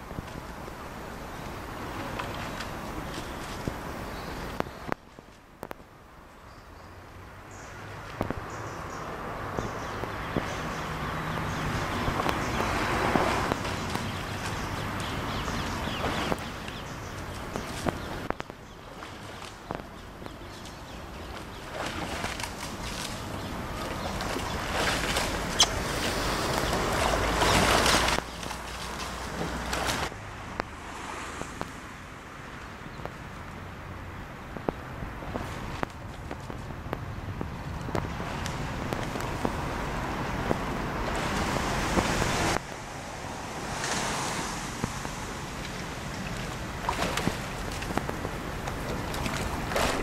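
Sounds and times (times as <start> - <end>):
oars working the water: 0.0 - 50.0
wind buffeting microphone: 8.2 - 30.2, 33.8 - 50.0.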